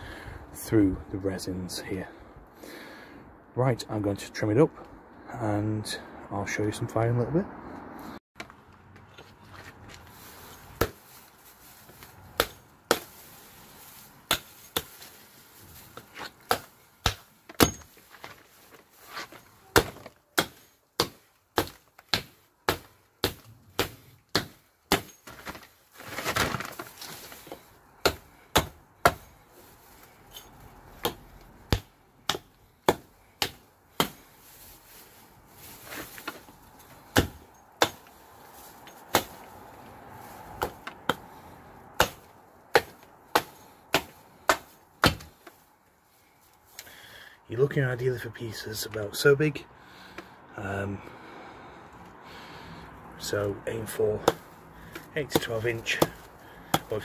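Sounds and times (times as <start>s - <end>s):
branches rustling: 8.4s - 57.0s
hatchet chopping wood: 10.7s - 11.0s, 11.9s - 13.3s, 14.2s - 15.2s, 15.9s - 18.4s, 19.2s - 25.7s, 26.3s - 29.4s, 30.0s - 34.4s, 36.0s - 38.2s, 38.8s - 39.6s, 40.5s - 45.6s, 54.2s - 57.0s.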